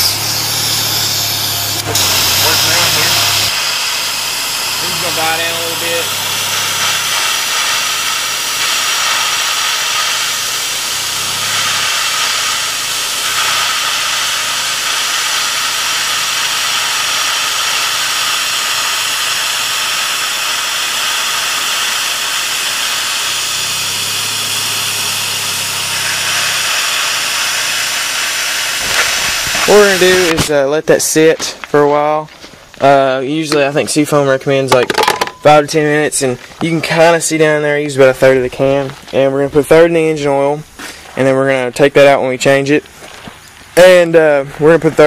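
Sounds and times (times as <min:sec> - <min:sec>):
car engine idling: 0:00.0 - 0:30.4
air and fluid hissing into intake: 0:00.0 - 0:31.4, 0:35.6 - 0:45.0.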